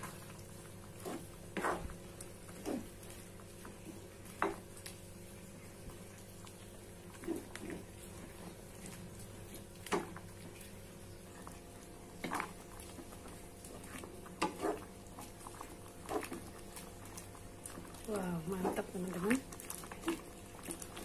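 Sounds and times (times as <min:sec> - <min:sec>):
broth simmering: 0:00.0 - 0:21.0
spatula scraping a wok: 0:00.9 - 0:03.0.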